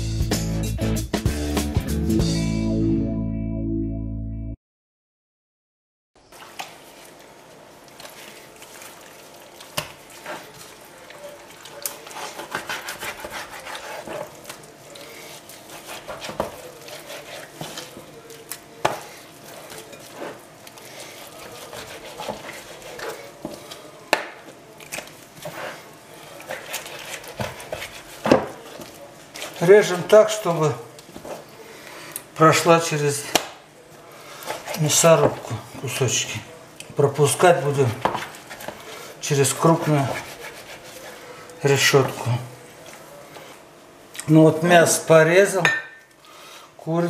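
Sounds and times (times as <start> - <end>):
raw meat being handled: 6.4 - 31.6, 37.4 - 43.6.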